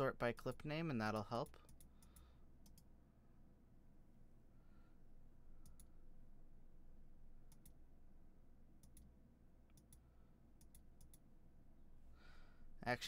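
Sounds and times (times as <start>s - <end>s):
low room hum: 0.0s - 13.0s
faint mouse clicks: 0.4s - 2.9s, 5.6s - 5.9s, 7.5s - 7.8s, 8.8s - 9.1s, 9.7s - 11.2s.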